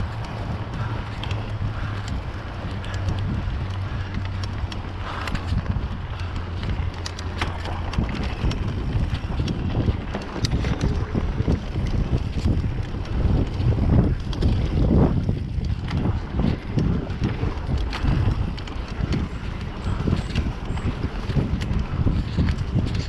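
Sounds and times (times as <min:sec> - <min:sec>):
bike clicks and rattles: 0:00.0 - 0:23.0
low tyre rumble: 0:00.0 - 0:23.0
wind buffeting microphone: 0:00.0 - 0:23.0.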